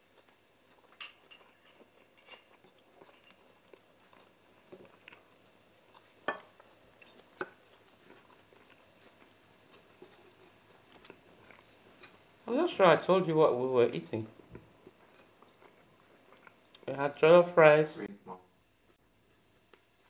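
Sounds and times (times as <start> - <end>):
chewing and mouth smacks: 0.0 - 12.2, 14.4 - 16.9.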